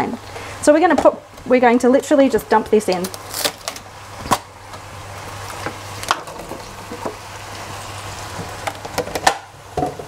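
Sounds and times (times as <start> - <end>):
chicken sizzling in pot: 3.1 - 10.0.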